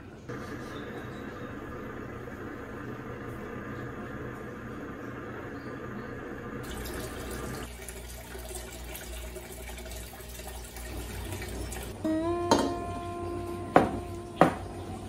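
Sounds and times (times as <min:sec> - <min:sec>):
aquarium water splashing: 0:06.0 - 0:12.1, 0:12.8 - 0:15.0
ringing tone with knock: 0:12.4 - 0:14.7.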